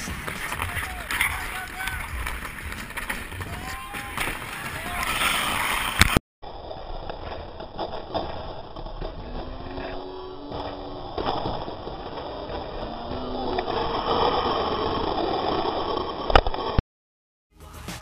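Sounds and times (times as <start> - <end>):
crowd voices: 0.0 - 5.9
skates scraping on ice: 0.0 - 16.8.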